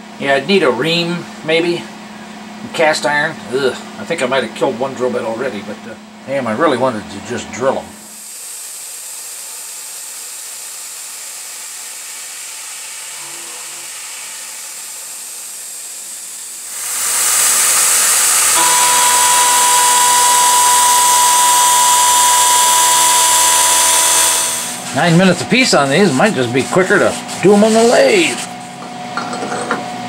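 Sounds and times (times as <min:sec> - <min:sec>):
milling machine cutting metal: 0:13.0 - 0:28.6
high steady whine: 0:16.4 - 0:30.0.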